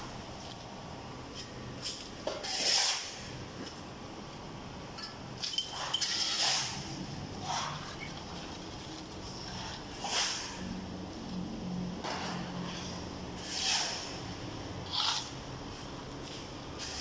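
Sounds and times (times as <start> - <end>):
shovel scraping rubble: 1.9 - 3.3, 5.6 - 8.1.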